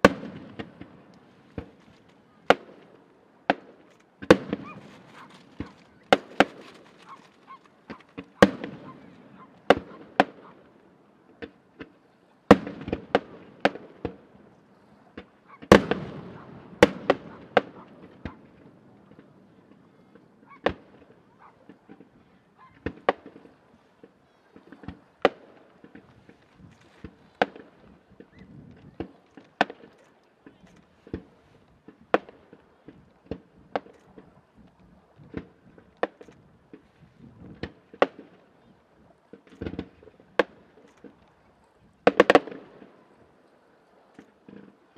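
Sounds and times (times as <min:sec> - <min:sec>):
firework shells bursting: 0:00.0 - 0:10.5.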